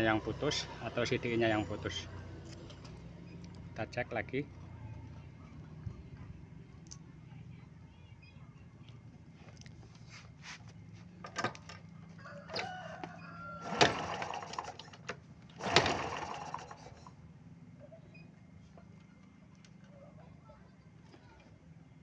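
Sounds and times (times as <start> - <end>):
rooster crowing: 12.0 - 14.5.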